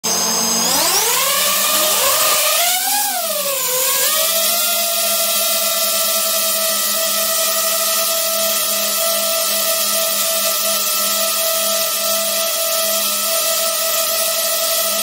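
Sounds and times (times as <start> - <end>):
drone propellers whirring: 0.0 - 10.6.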